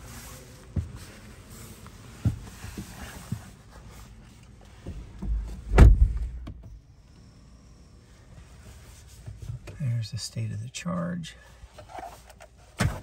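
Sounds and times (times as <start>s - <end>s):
car door shutting: 4.8s - 6.8s.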